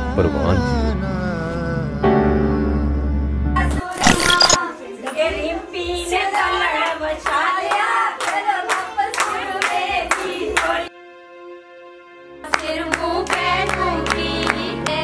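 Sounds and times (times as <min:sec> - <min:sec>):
women singing folk song: 0:04.6 - 0:10.9, 0:12.4 - 0:15.0.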